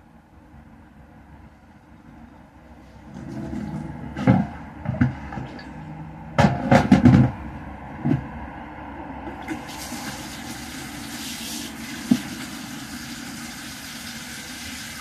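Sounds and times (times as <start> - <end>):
sharp knocks and bumps: 6.4 - 7.4.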